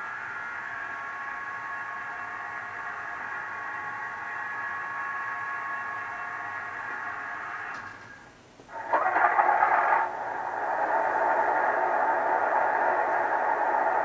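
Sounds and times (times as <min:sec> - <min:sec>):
fuel priming pump hum: 0:08.7 - 0:14.0.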